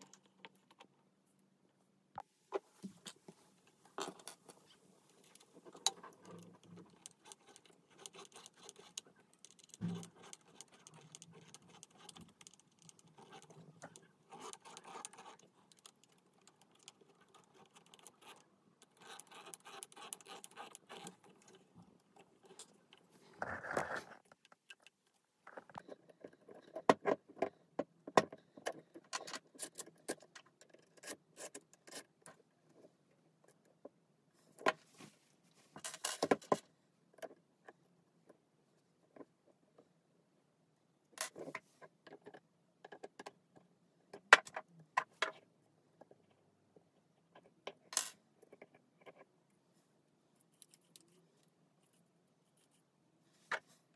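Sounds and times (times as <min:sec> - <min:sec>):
small parts clicking and tapping: 0:03.9 - 0:23.1, 0:41.2 - 0:49.3, 0:50.3 - 0:52.8.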